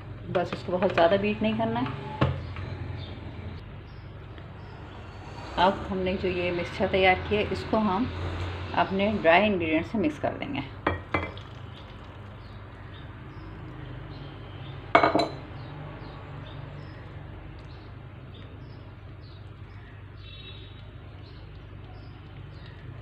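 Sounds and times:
dishware clink: 15.0s - 15.4s.

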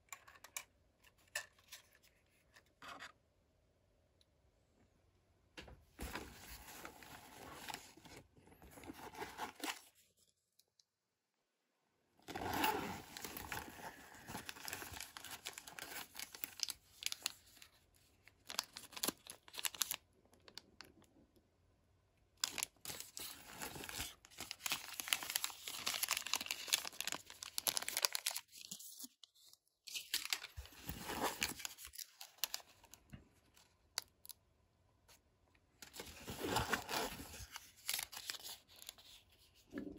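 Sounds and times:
fabric bag being handled: 12.4s - 13.6s.

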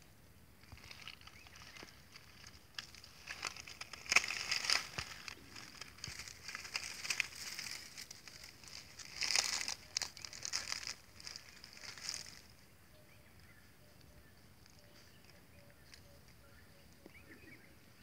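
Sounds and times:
claws digging in soil: 0.6s - 12.5s
dry leaves crackling: 0.6s - 12.8s.

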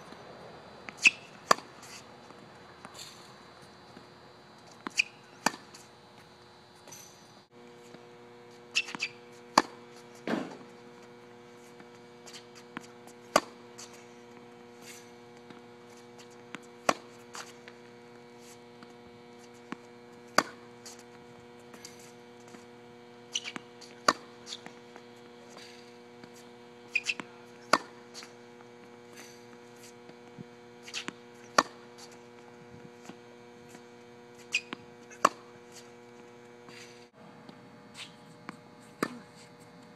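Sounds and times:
electrical hum: 0.0s - 39.9s
racket striking tennis ball: 0.9s - 3.2s, 4.7s - 5.9s, 8.6s - 10.9s, 11.7s - 33.8s, 34.4s - 36.0s, 38.0s - 39.4s
ball bouncing on hard court: 8.8s - 10.8s, 27.0s - 28.0s.

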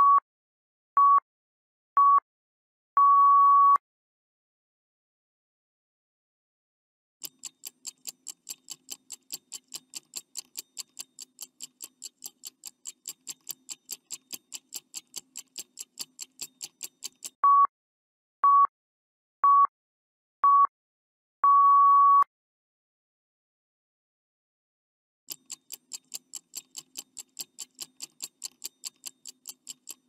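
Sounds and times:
long beep: 3.0s - 3.8s, 21.5s - 22.3s
short beeps: 3.0s - 3.8s, 17.4s - 17.7s, 21.4s - 22.3s
fast clock ticking: 7.2s - 17.4s, 25.3s - 30.0s.

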